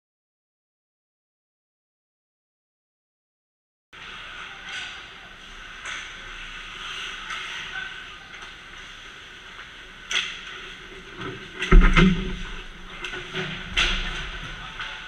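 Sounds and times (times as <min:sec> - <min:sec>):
heavy thud: 0:11.7 - 0:12.9.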